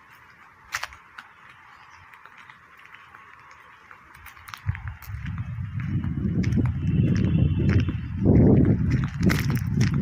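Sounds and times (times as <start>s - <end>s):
footsteps on pavement: 0.0s - 10.0s
wind rumbling on microphone: 3.4s - 10.0s.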